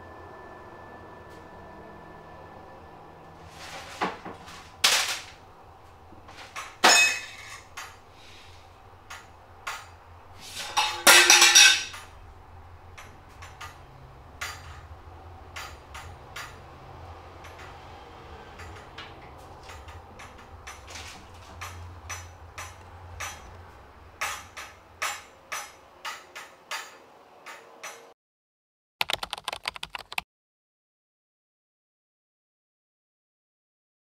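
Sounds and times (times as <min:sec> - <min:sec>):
metal kitchenware clattering: 0:03.5 - 0:05.4, 0:06.3 - 0:12.2, 0:18.5 - 0:28.1.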